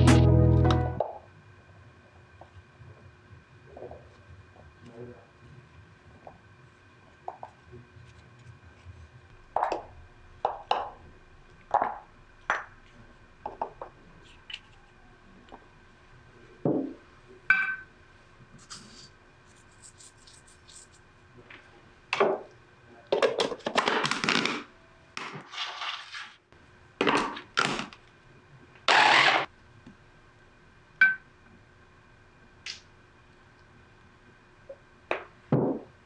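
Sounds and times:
food chopper motor bursts: 28.9 - 29.5.

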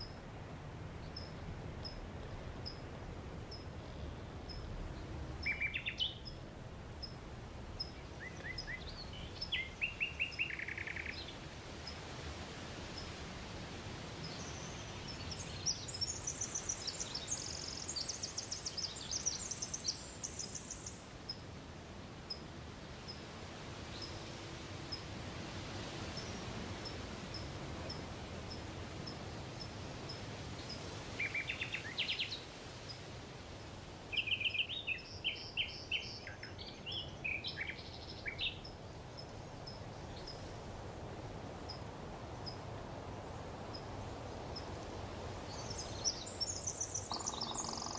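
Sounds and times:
background hiss: 0.0 - 47.9
songbirds trilling: 42.4 - 47.9.

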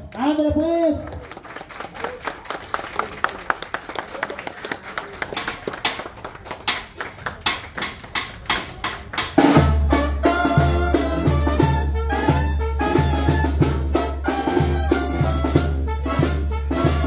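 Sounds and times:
people clapping: 0.0 - 9.6
brass band with drums playing: 9.2 - 17.0.

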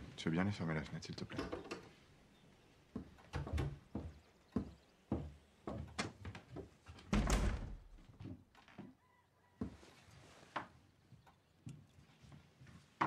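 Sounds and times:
footsteps on wooden floorboards: 2.9 - 7.1, 7.9 - 8.9, 9.6 - 13.0
wooden window pushed shut: 7.0 - 8.0.

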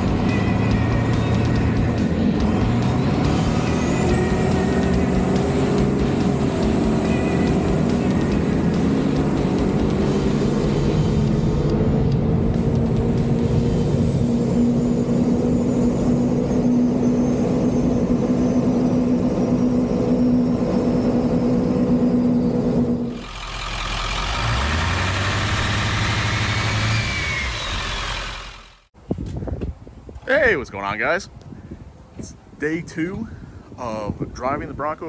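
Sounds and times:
truck engine droning hum: 0.0 - 29.0
faint rising whistle: 12.1 - 23.2.

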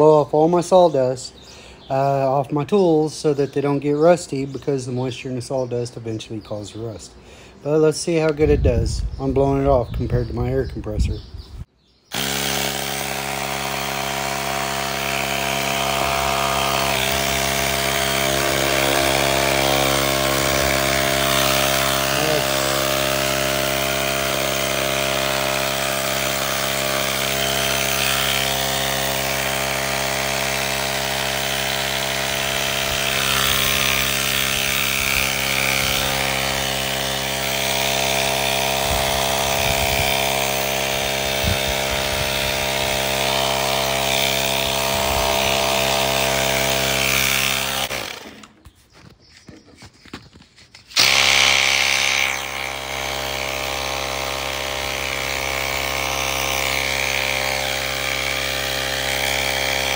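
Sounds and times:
handheld air blower running: 12.1 - 59.9.

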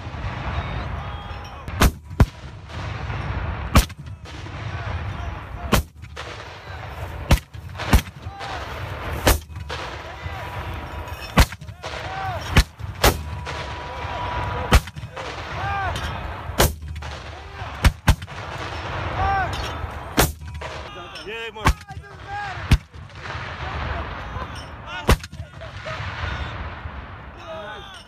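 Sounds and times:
mortar launch blasts: 0.0 - 20.9.

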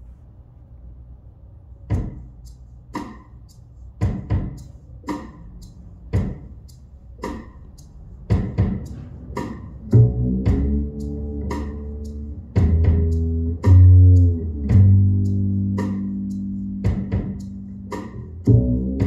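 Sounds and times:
steady low hum: 0.0 - 19.0
kick and snare drum hits: 1.9 - 2.3, 4.0 - 5.3, 8.3 - 8.8.

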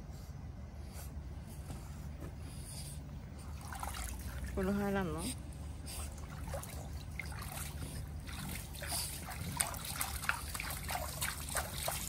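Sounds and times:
small water splashes: 3.6 - 5.0, 5.9 - 12.0
water trickling and dripping: 6.1 - 12.0.

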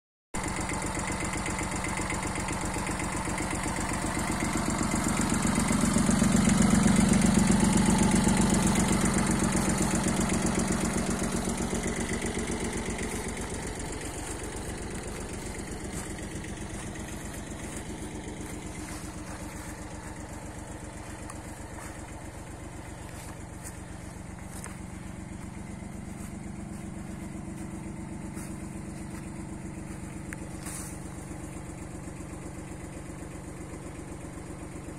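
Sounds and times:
diesel tractor engine idling: 0.4 - 34.9.

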